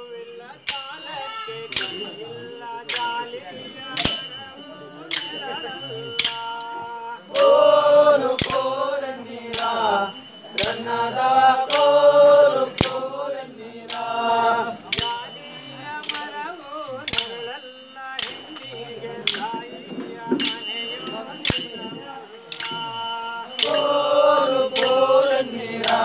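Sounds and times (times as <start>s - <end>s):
voices singing folk chant: 0.0s - 26.0s
wooden sticks clacking: 14.9s - 15.2s, 18.2s - 19.7s, 23.6s - 24.0s.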